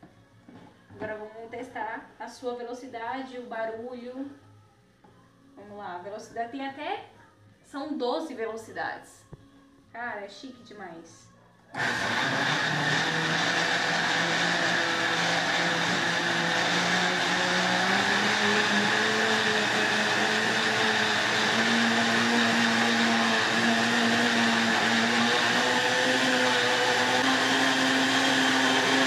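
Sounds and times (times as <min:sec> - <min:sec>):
blender motor whining: 0:11.8 - 0:29.0.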